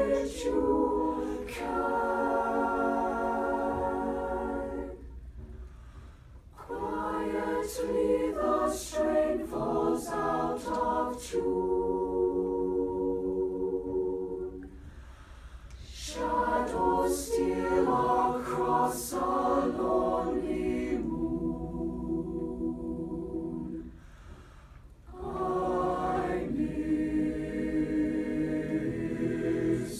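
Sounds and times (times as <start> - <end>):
choir singing a cappella: 0.0 - 29.9.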